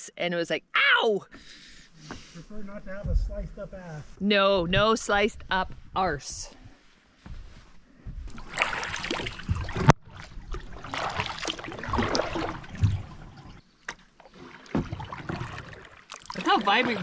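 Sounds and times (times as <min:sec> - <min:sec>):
paddle swishing through water: 0:07.4 - 0:17.0.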